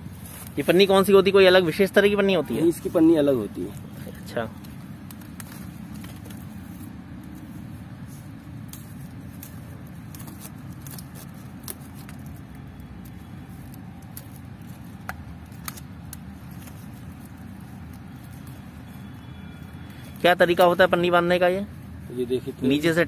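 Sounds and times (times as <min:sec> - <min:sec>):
steady low rumble: 0:00.0 - 0:20.2
plastic strip crackling and snapping: 0:04.5 - 0:07.5, 0:08.6 - 0:20.7.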